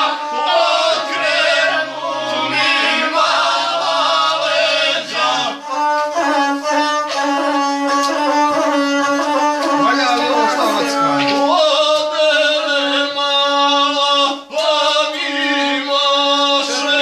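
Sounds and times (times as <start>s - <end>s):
bowed fiddle melody: 0.0s - 11.7s
man singing: 5.2s - 17.0s.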